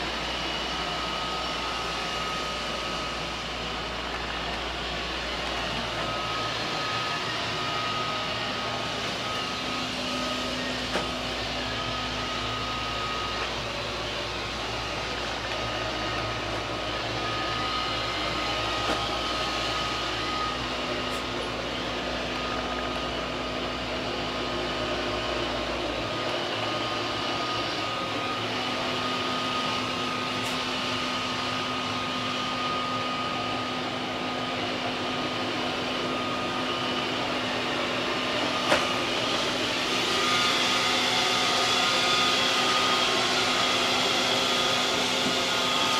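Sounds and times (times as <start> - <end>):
machine hum with steady tones: 0.0 - 45.9.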